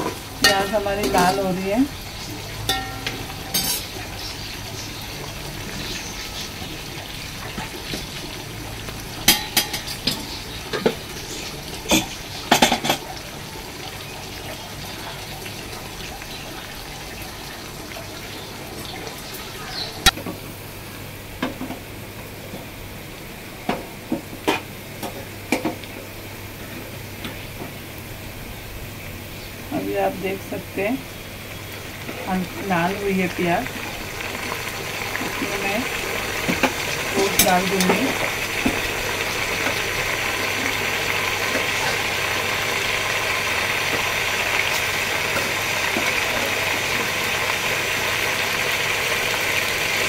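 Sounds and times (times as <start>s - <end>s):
onions sizzling in hot oil: 0.0s - 50.0s
spoon knocking and scraping pot: 2.7s - 3.9s.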